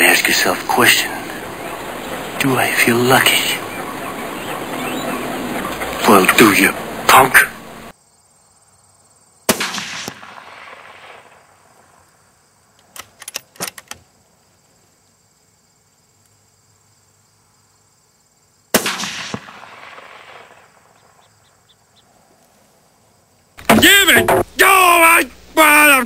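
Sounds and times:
rifle shots with echo: 9.5 - 11.5, 18.7 - 21.0.

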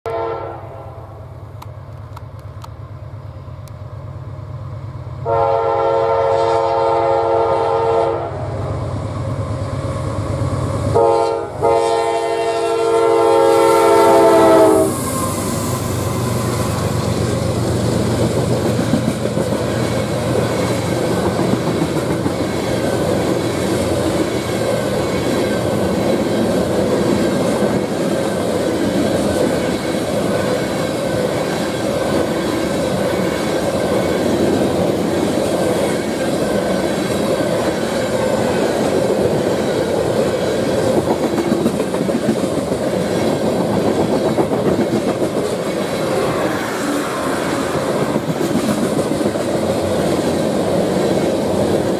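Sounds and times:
locomotive horn blasts: 0.1 - 1.2, 5.2 - 8.5, 11.0 - 15.0
train wheels clicking over rail joints: 14.4 - 51.9.

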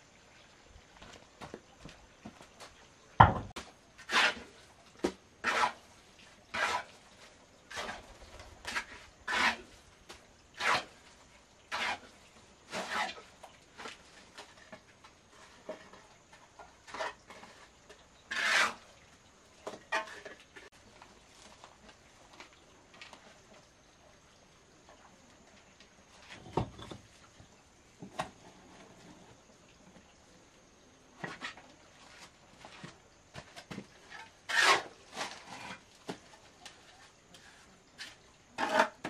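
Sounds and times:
trowel scraping wet mortar: 4.0 - 4.6, 5.4 - 5.8, 6.5 - 7.0, 7.7 - 9.7, 10.6 - 11.0, 11.7 - 13.3, 18.3 - 18.9, 34.0 - 35.9, 38.0 - 39.0.

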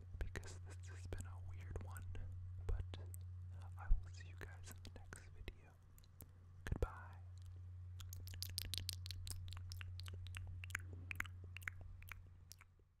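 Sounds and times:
wet mouth sucking clicks and smacks: 6.0 - 6.3, 7.3 - 12.7.

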